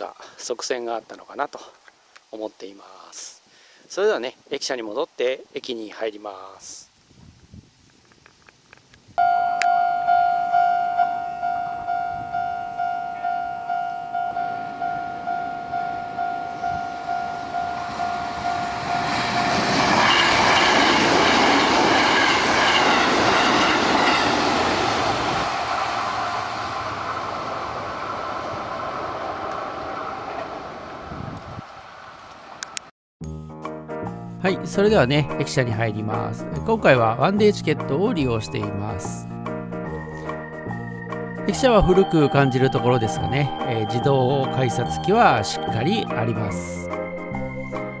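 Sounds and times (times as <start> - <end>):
level crossing alarm ringing: 9.2 - 24.2, 41.5 - 46.0
train running past: 9.2 - 32.7, 39.9 - 48.0.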